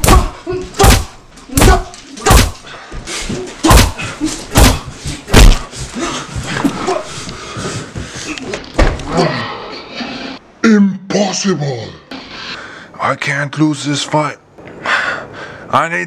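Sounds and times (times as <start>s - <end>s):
punch hits: 0.0s - 2.7s, 3.6s - 5.7s
fighters grunting: 0.0s - 7.4s.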